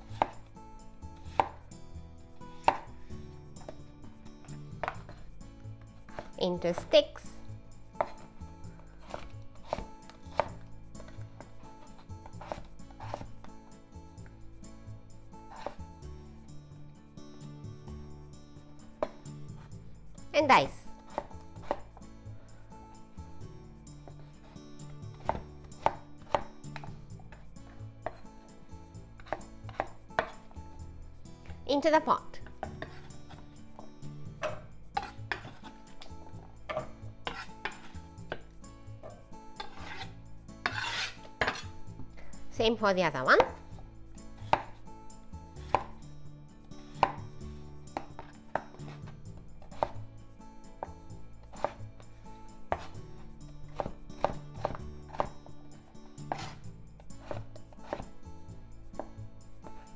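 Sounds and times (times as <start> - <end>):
knife chopping on wooden board: 0.0 - 0.5, 1.2 - 1.6, 2.6 - 2.9, 4.5 - 5.2, 6.0 - 7.0, 8.0 - 13.5, 15.5 - 15.8, 21.0 - 22.0, 24.0 - 27.4, 28.0 - 28.3, 29.2 - 30.4, 32.4 - 41.8, 43.4 - 43.8, 44.4 - 44.8, 45.6 - 46.0, 47.0 - 47.3, 47.9 - 50.0, 50.8 - 51.8, 52.7 - 55.6, 56.3 - 58.1
soft background music: 0.0 - 59.9.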